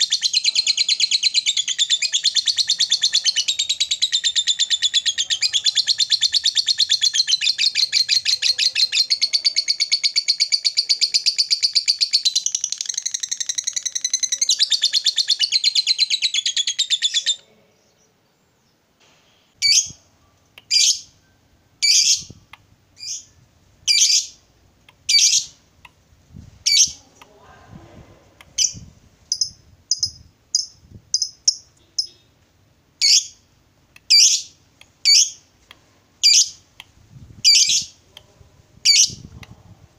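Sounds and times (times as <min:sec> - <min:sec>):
lovebird chattering trill: 0:00.0 - 0:17.4, 0:21.8 - 0:22.4, 0:23.9 - 0:24.4, 0:25.1 - 0:25.6, 0:26.6 - 0:27.0, 0:28.6 - 0:32.3, 0:33.0 - 0:33.4, 0:34.1 - 0:35.4, 0:36.2 - 0:36.6, 0:37.4 - 0:38.0, 0:38.8 - 0:39.3
lovebird sharp chirps: 0:00.0 - 0:18.1, 0:19.6 - 0:24.4, 0:25.1 - 0:25.6, 0:26.6 - 0:27.0, 0:28.6 - 0:32.3, 0:33.0 - 0:33.4, 0:34.0 - 0:35.4, 0:36.2 - 0:36.6, 0:37.4 - 0:38.0, 0:38.9 - 0:39.3.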